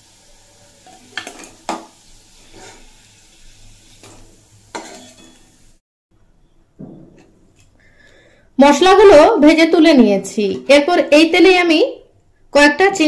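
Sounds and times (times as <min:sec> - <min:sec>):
oil sizzling faintly: 0:00.0 - 0:05.8
metal spatula scraping metal pan: 0:02.4 - 0:03.0, 0:04.0 - 0:05.6.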